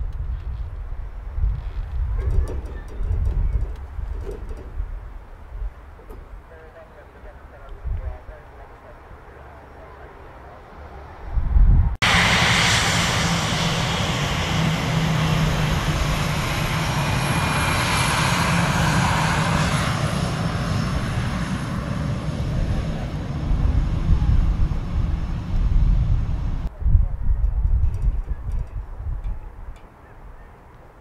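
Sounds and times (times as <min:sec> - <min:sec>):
aircraft engine drone: 0:12.0 - 0:26.7.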